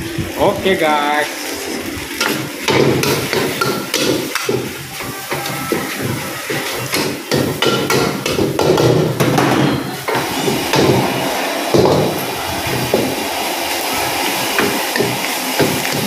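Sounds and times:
gas burner and frying hiss: 0.0 - 16.0
metal utensils clanking on a wok: 2.2 - 12.2.

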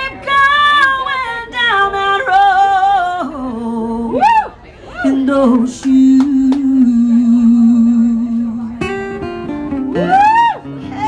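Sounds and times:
woman singing: 0.0 - 4.2
acoustic guitar: 0.0 - 11.0.

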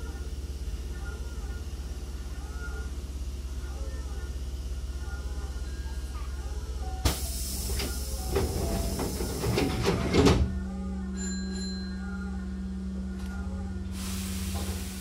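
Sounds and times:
steady low hum: 0.0 - 15.0
hiss of air: 7.1 - 8.1, 13.9 - 15.0
sliding doors closing with hiss: 7.1 - 10.4, 14.0 - 15.0.

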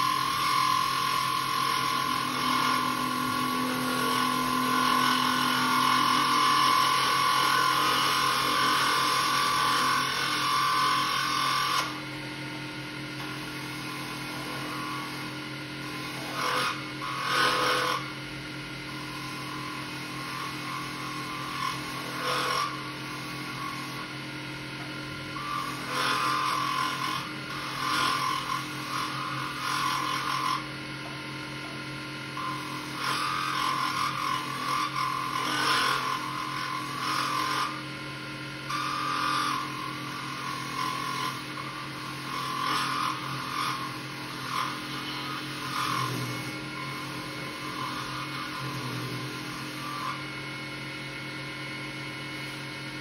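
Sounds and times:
lathe motor hum: 0.0 - 53.0
turning tool cutting resin: 0.0 - 53.0.

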